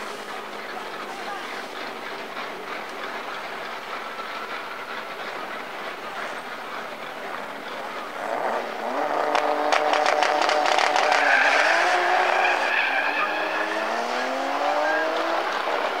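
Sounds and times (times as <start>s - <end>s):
car engines revving: 0.0s - 16.0s
exhaust crackle: 0.0s - 16.0s
tyres squealing: 8.3s - 16.0s.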